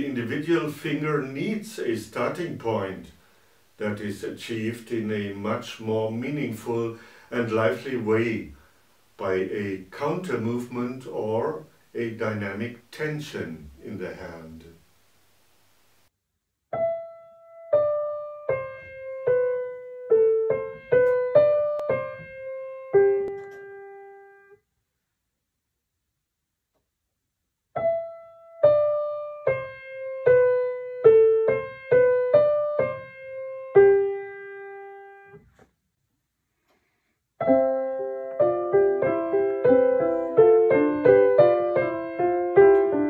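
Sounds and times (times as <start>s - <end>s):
piano melody and chords: 16.7s - 24.6s, 27.8s - 35.4s, 37.4s - 43.0s.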